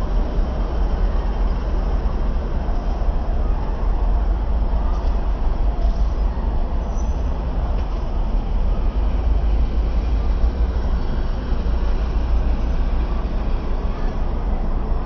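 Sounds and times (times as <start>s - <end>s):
road traffic rumble: 0.0s - 15.0s.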